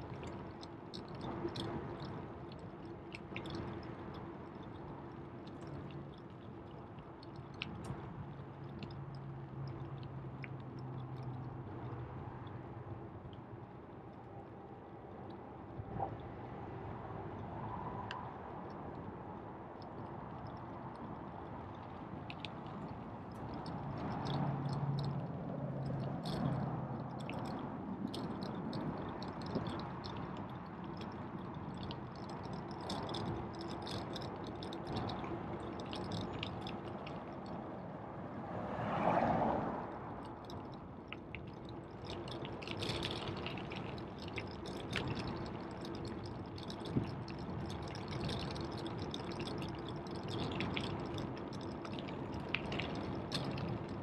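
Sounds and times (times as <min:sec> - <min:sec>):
bicycle rolling and wind noise: 0:00.0 - 0:54.0
bicycle clicks and rattles: 0:19.9 - 0:37.6, 0:40.2 - 0:54.0.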